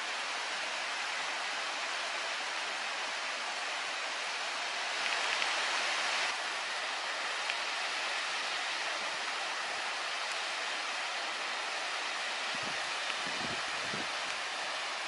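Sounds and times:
running water hissing: 0.0 - 15.0.

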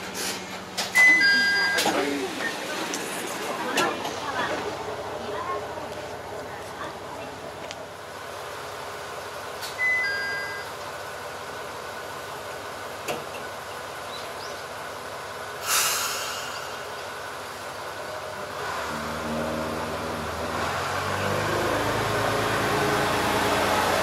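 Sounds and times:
diesel railcar engine idling: 0.0 - 24.0
compressed air hiss: 15.6 - 16.8.

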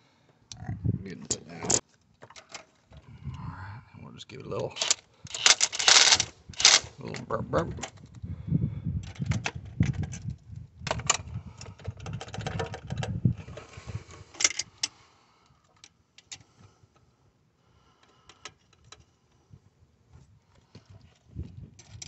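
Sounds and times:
hands clicking on parts: 4.7 - 6.8.

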